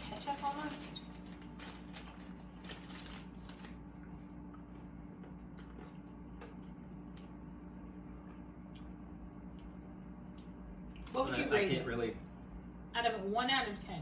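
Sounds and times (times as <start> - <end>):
plastic crisp packet crinkling: 0.0 - 4.1
steady low hum: 0.0 - 14.0.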